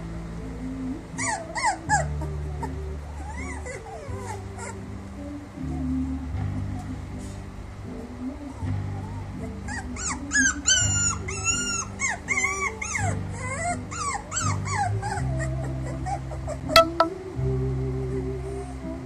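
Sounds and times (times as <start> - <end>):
background music with low chords: 0.0 - 19.0
puppy whimpering: 1.2 - 4.8, 9.0 - 16.9.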